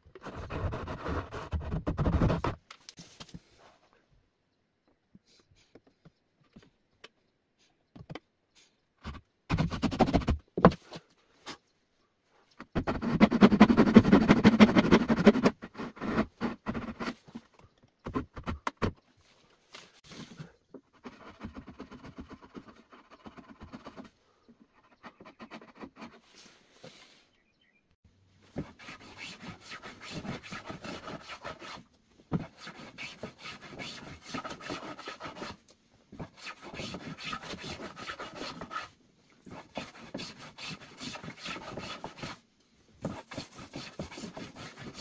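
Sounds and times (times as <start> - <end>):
pencil marking wood: 12.7 - 17.2, 20.9 - 26.6, 28.6 - 35.6, 43.0 - 45.0
hand saw cutting wood: 28.6 - 31.8, 32.4 - 35.6, 36.3 - 38.9, 39.5 - 42.4.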